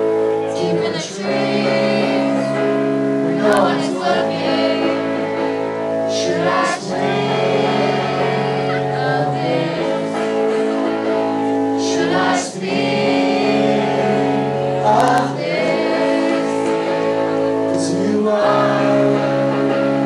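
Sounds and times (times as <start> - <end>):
guitar chords: 0.0 - 20.0
person singing: 0.0 - 20.0.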